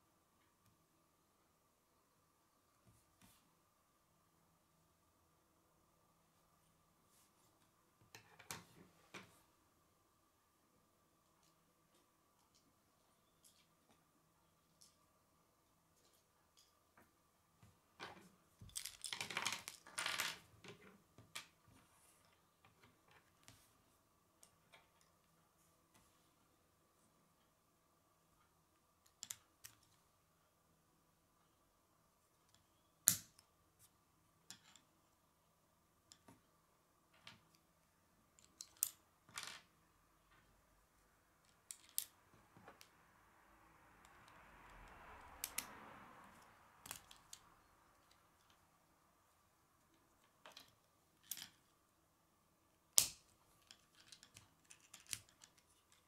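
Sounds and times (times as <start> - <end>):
plastic pieces clicking together: 53.0 - 56.0.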